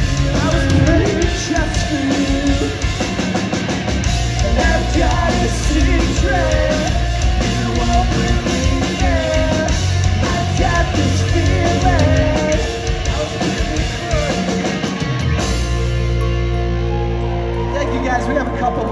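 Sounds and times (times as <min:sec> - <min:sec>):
man singing: 0:00.0 - 0:03.2, 0:04.3 - 0:14.7
bass: 0:00.0 - 0:18.9
distorted electric guitars: 0:00.0 - 0:18.9
drums: 0:00.0 - 0:18.9.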